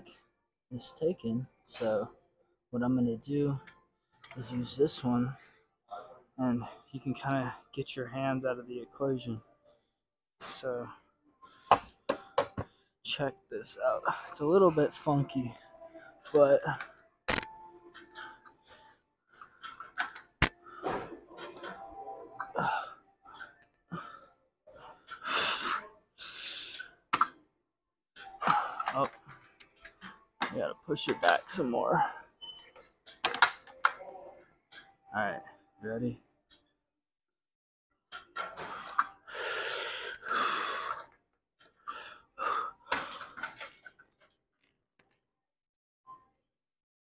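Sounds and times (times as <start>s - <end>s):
sharp click: 17.3s - 17.5s
man breathing hard: 38.6s - 41.1s.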